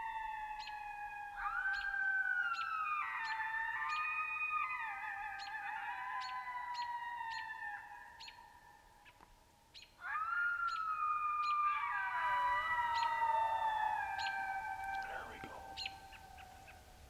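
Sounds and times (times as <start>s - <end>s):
coyotes howling: 0.0s - 17.0s.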